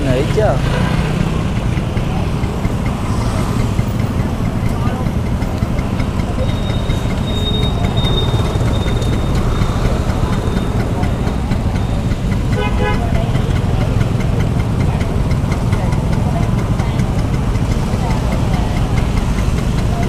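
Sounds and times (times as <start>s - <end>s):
scooter engine running: 0.0s - 20.0s
vehicle horn toot: 12.5s - 13.3s.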